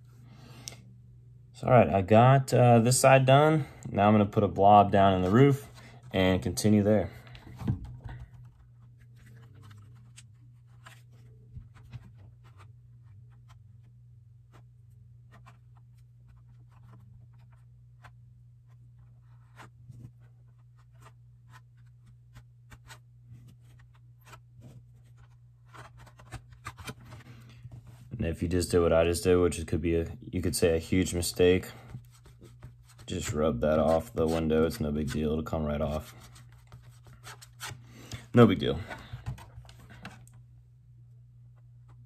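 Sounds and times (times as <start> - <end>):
low steady hum: 0.0 - 42.0.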